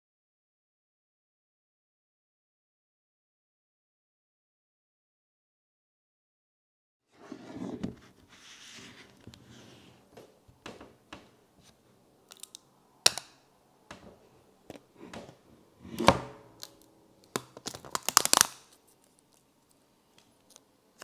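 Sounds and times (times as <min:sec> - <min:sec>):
sharp plastic crack: 0:12.3 - 0:13.4, 0:16.1 - 0:18.8
plastic wrapping crinkling and tearing: 0:16.6 - 0:20.6.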